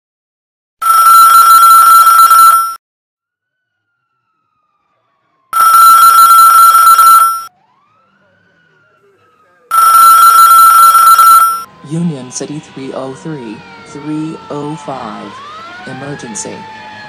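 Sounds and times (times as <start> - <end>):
electric alarm bell ringing: 0.8 - 2.8, 5.6 - 7.5, 9.7 - 11.7.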